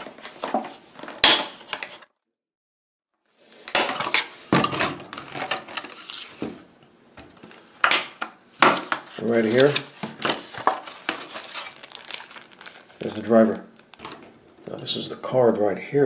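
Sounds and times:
plastic packaging crackling: 9.2s - 14.8s.

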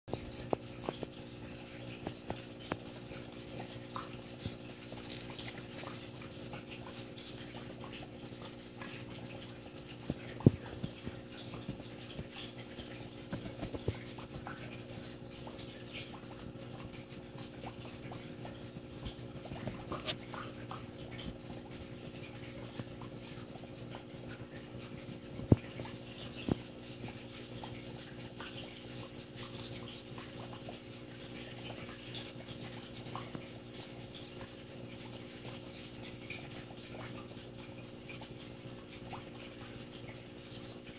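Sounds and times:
aquarium equipment humming: 0.1s - 40.9s.

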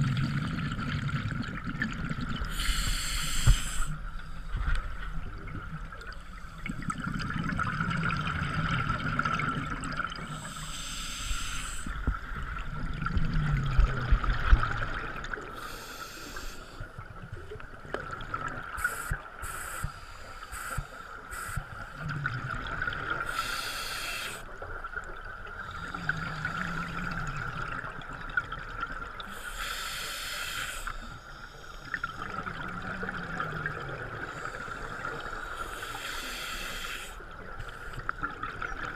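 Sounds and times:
regulator hissing inhale: 2.5s - 4.7s, 10.3s - 12.0s, 15.6s - 16.8s, 18.8s - 21.8s, 23.3s - 24.5s, 29.2s - 32.0s, 34.3s - 38.0s.

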